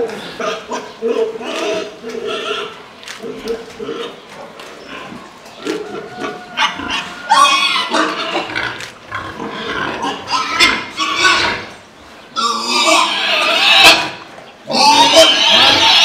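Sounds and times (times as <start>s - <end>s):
pig calling loudly: 5.6s - 11.7s, 12.4s - 16.0s.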